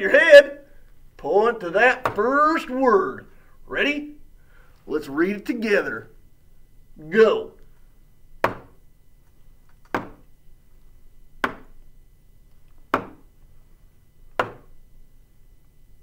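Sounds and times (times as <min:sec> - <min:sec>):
pointer tapping a whiteboard: 0:08.4 - 0:08.8, 0:11.4 - 0:11.8, 0:12.9 - 0:13.2, 0:14.4 - 0:14.7.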